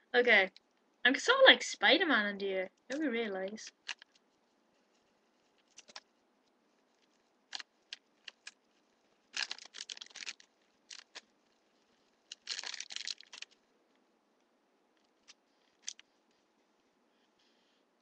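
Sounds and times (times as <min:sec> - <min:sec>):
plastic bag crinkling: 0:03.7 - 0:13.7, 0:15.0 - 0:16.4.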